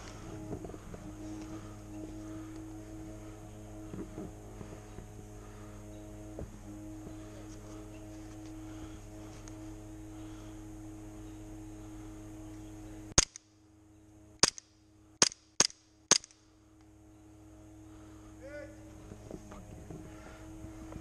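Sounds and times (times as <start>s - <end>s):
steady low hum: 0.0s - 21.0s
airsoft gun shots: 13.2s - 13.5s, 14.4s - 16.4s.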